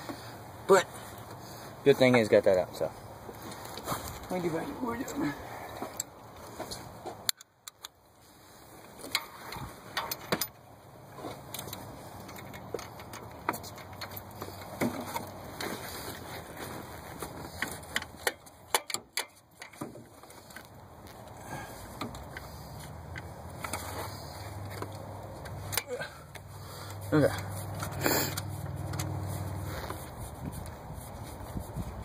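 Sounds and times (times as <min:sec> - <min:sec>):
hand tools clicking on metal: 0:17.6 - 0:19.8, 0:21.9 - 0:29.3.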